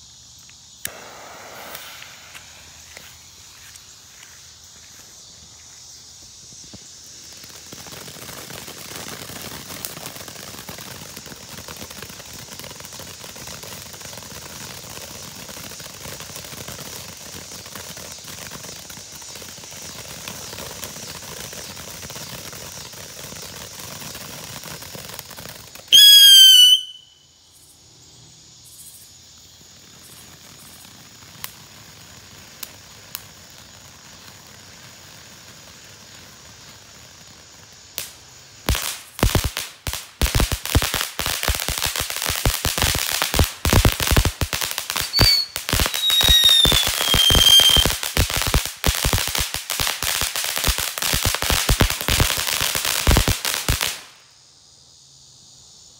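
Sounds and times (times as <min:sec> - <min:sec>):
firework whistle: 0:00.0 - 0:04.2, 0:25.7 - 0:27.4, 0:40.2 - 0:54.2
firework hissing: 0:00.0 - 0:54.6
scattered pops: 0:00.3 - 0:27.0, 0:29.6 - 0:54.2.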